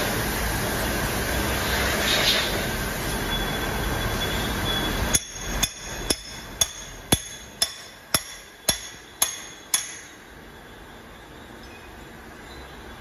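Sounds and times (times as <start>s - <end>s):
hammer tapping metal: 5.1s - 10.3s.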